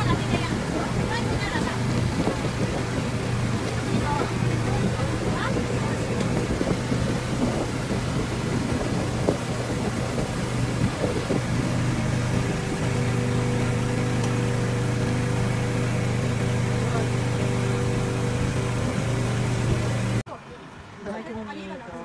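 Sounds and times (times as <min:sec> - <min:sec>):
boat motor drone: 0:00.0 - 0:20.2
wind and water hiss: 0:00.0 - 0:22.0.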